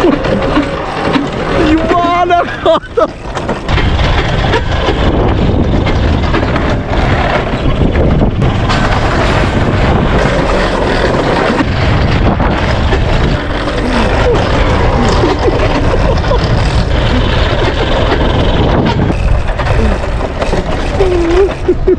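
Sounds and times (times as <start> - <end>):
sled wheels rumbling on rail: 0.0 - 21.9
wind rushing over microphone: 0.0 - 21.9.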